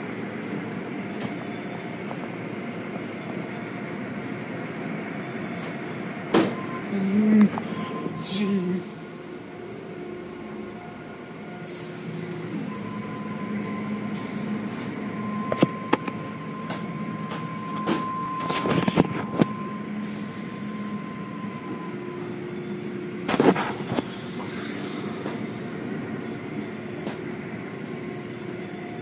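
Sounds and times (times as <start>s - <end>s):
car wash machinery humming: 0.0s - 29.0s
thin steady whine: 0.0s - 29.0s.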